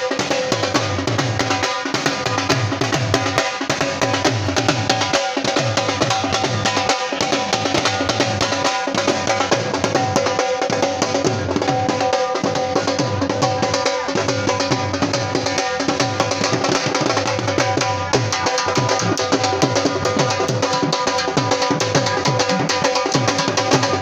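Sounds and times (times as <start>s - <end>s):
dhol drums beaten fast: 0.0s - 24.0s.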